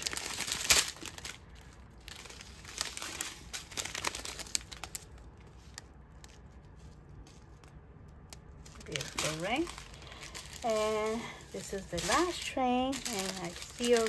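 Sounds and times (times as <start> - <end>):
plastic bags crinkling: 0.0 - 14.0.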